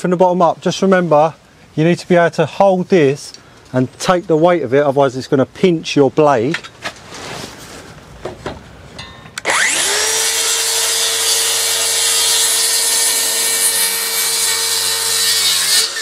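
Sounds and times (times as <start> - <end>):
circular saw cutting wood: 9.4 - 16.0.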